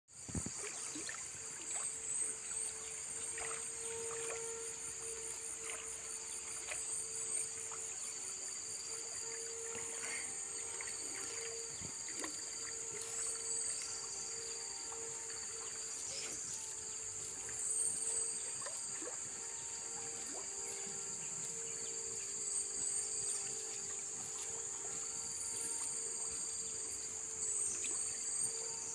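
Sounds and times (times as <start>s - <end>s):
pulsing insect chorus: 0.2s - 28.9s
river water flowing: 0.5s - 28.1s.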